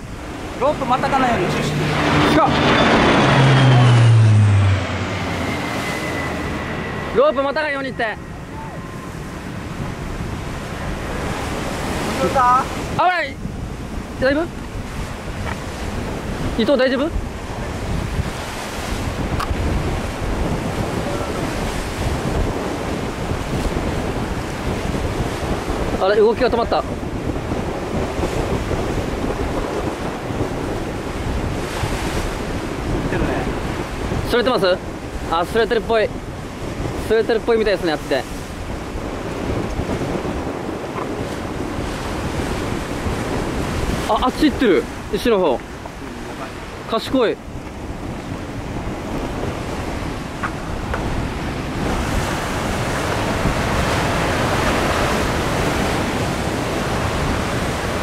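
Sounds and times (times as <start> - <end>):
wind buffeting microphone: 0.0 - 58.0
surf breaking on rocks: 8.9 - 58.0.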